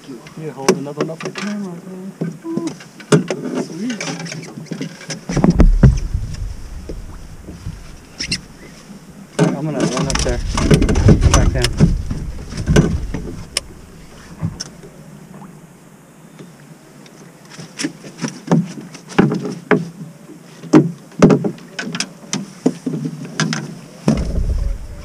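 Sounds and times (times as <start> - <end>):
wind rumble on microphone: 5.3 - 9.3, 10.0 - 15.5, 24.1 - 25.0
gear knocking in metal boat: 9.4 - 13.7.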